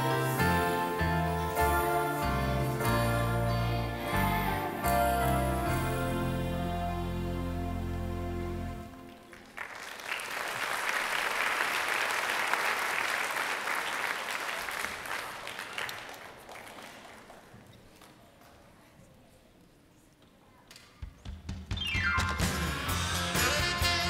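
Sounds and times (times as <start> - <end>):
music: 0.0 - 9.3, 21.2 - 24.0
audience applauding: 8.9 - 18.1.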